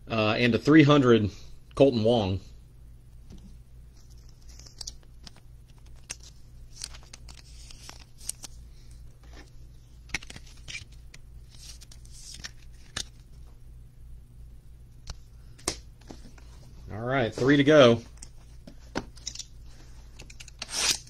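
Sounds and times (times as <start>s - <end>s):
steady low hum: 0.0s - 21.0s
plastic card holder rustling: 10.1s - 13.2s.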